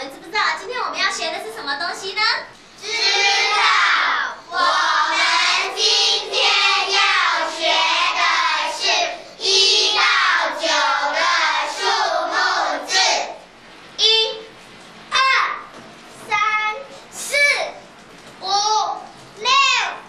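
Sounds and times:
children singing in unison: 2.8s - 13.3s.

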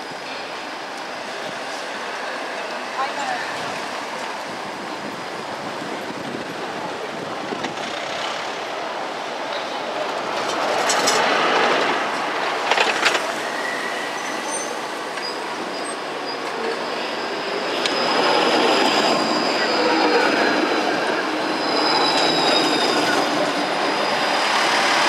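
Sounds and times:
tram rolling noise: 0.0s - 25.0s
high wheel squeal: 13.4s - 25.0s.

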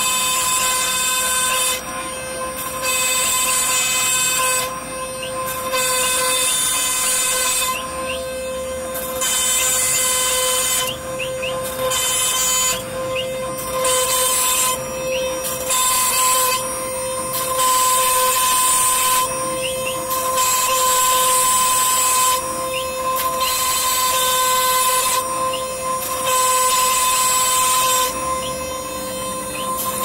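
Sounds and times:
bit cutting through wood: 0.0s - 30.0s
cnc router spindle whine: 0.0s - 30.0s.

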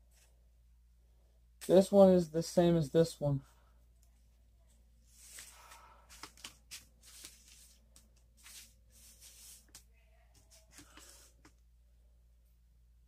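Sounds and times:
paper rustling: 5.1s - 11.5s.

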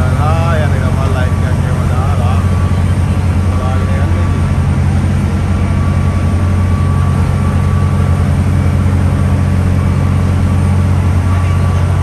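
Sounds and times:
faint steady whine: 0.0s - 12.0s
large engine droning: 0.0s - 12.0s.

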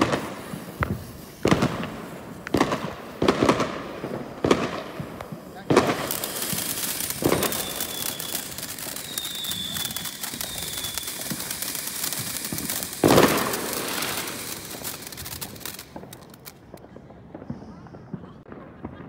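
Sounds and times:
firework bangs: 0.0s - 19.0s
firework fountain crackling: 0.0s - 19.0s
small aerial bursts popping: 4.4s - 16.8s.

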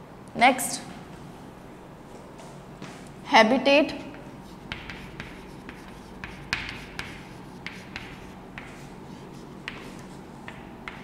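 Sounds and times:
chalk writing on chalkboard: 4.0s - 11.0s.

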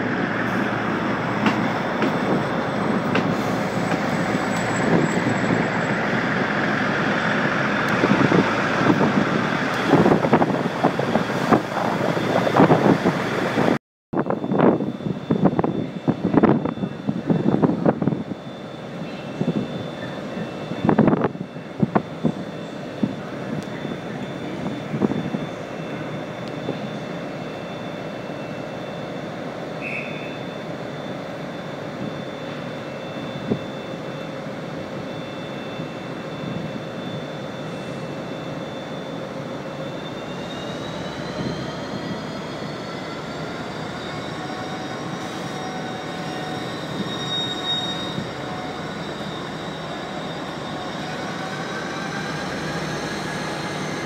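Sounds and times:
diesel locomotive powering up: 0.0s - 54.0s
train running hum: 0.0s - 54.0s.

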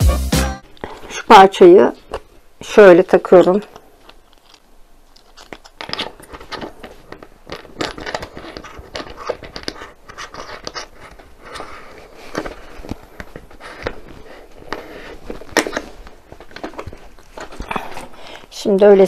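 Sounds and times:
rustling: 3.6s - 18.5s
plastic parts clicking and knocking: 5.4s - 11.7s.

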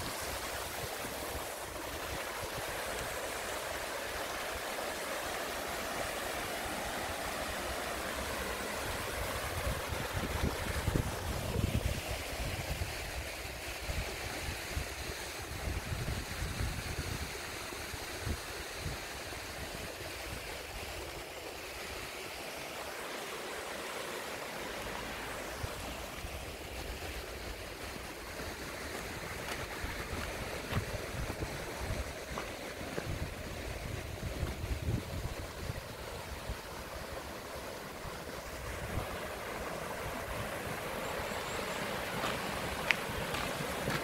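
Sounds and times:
stream rushing over rocks: 0.0s - 44.0s.

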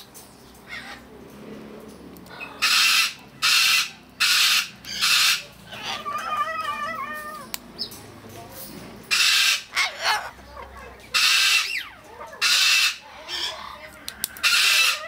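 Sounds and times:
cockatoo screeching: 2.3s - 7.5s, 9.1s - 10.4s, 11.1s - 15.0s.

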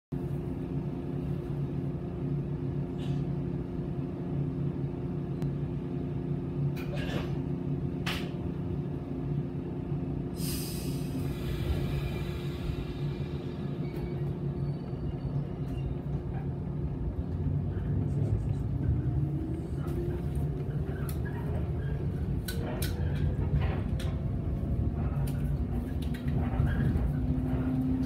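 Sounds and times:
electric train hum: 0.1s - 28.0s
air brake hiss: 10.4s - 13.6s.

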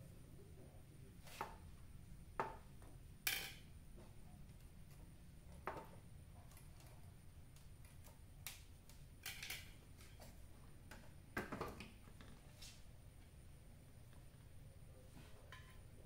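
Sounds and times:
hands clicking and tapping wires: 2.4s - 12.2s.

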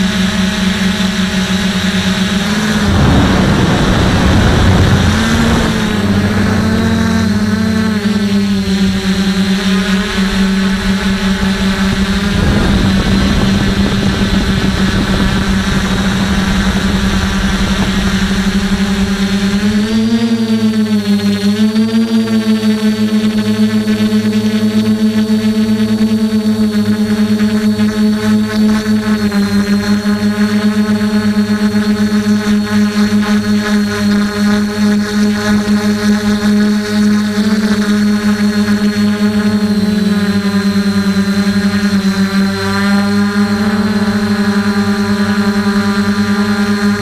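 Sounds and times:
drone propellers whirring: 0.0s - 47.0s.

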